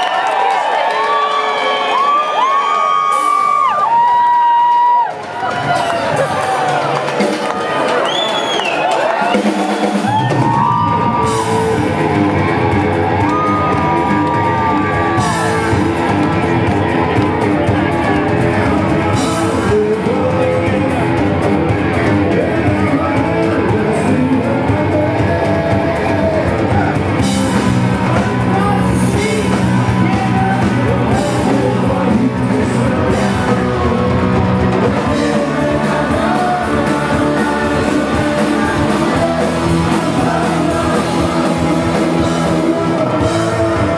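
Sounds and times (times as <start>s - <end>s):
punk rock band playing live: 2.0s - 43.9s
person singing: 10.0s - 43.9s.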